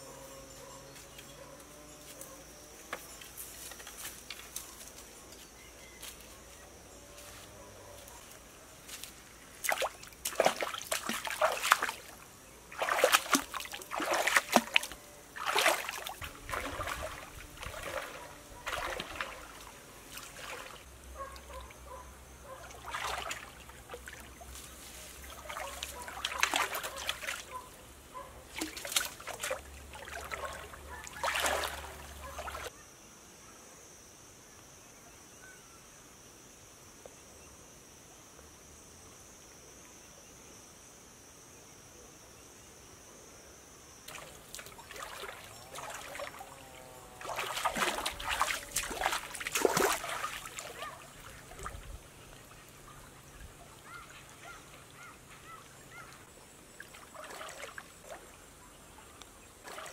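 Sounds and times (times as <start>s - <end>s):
high insect drone: 0.0s - 59.9s
feet splashing through stream: 8.9s - 21.3s, 22.6s - 27.6s, 28.5s - 32.7s, 44.1s - 58.4s, 59.6s - 59.9s.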